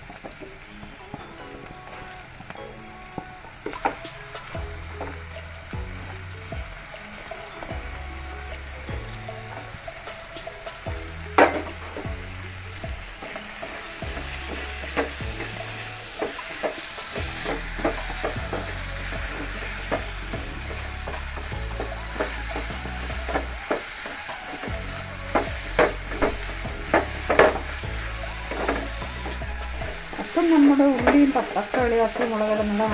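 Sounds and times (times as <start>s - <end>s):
onions and tomatoes sizzling in oil: 0.0s - 32.9s
wooden spatula scraping a pan: 13.2s - 32.9s.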